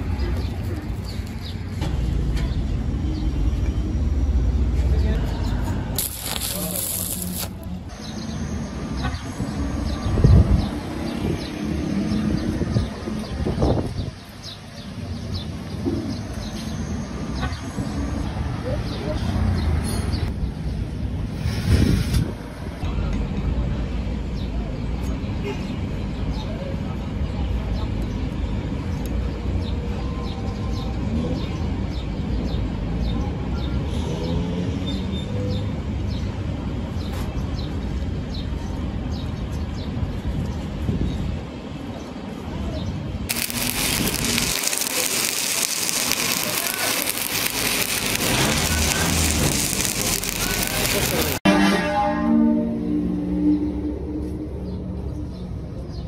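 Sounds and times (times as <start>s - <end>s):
small birds chirping: 42.8s - 51.4s.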